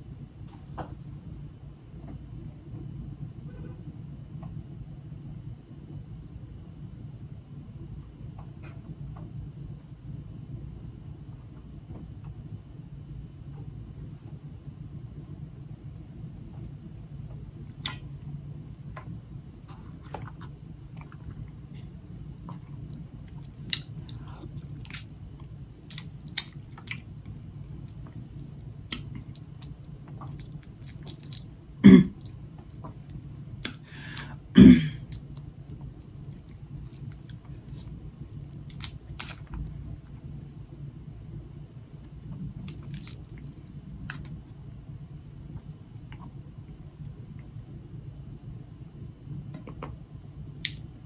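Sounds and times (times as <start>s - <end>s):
steady low hum: 0.0s - 51.0s
chewing: 22.4s - 31.5s, 35.0s - 39.7s, 42.6s - 43.6s
crab shell crackling: 22.7s - 34.3s, 34.9s - 39.6s, 42.5s - 43.5s.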